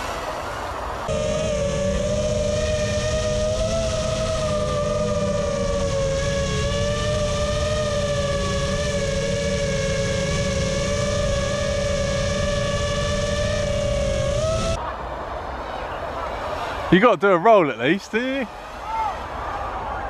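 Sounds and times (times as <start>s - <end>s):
drone motors whining: 0.0s - 14.8s
low wind rumble: 0.0s - 17.0s.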